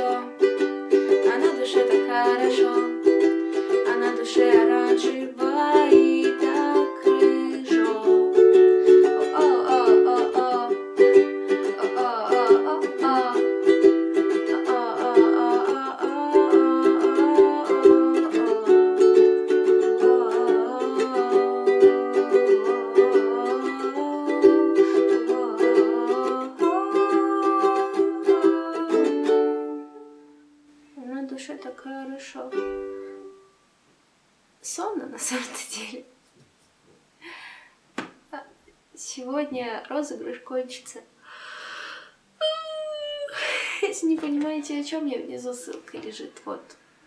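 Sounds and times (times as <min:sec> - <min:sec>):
woman singing: 0:00.0 - 0:29.9
ukulele strumming chords: 0:00.0 - 0:30.5, 0:32.5 - 0:33.5.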